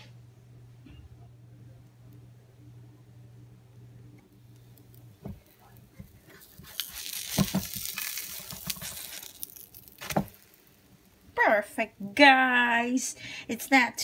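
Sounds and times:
pancake sizzling: 0:04.3 - 0:11.7.

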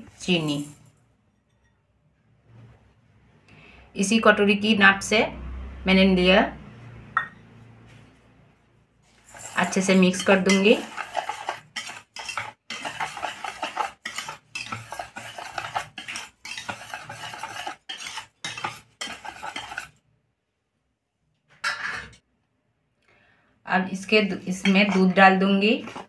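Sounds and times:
whisk scraping steel bowl: 0:09.1 - 0:20.0, 0:24.0 - 0:26.0.

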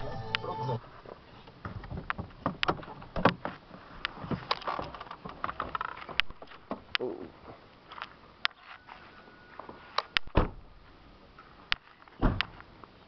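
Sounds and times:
stones clicking under tyres: 0:01.5 - 0:07.1.

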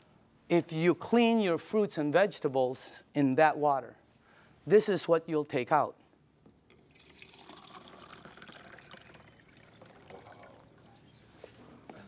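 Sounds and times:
water trickling and dripping: 0:06.7 - 0:10.9.

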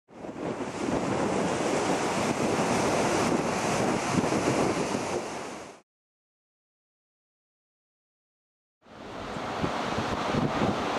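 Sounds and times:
heavy surf waves breaking: 0:00.1 - 0:05.8, 0:08.8 - 0:10.9
wind buffeting microphone: 0:00.1 - 0:05.8, 0:09.0 - 0:10.9.

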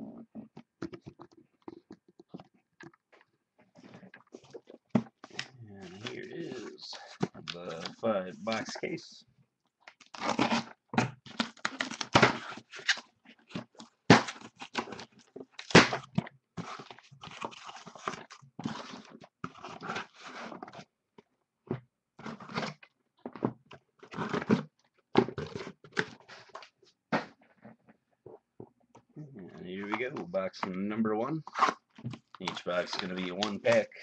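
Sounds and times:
cardboard scraping and tearing: 0:04.4 - 0:08.7, 0:10.1 - 0:20.8, 0:31.5 - 0:33.9.

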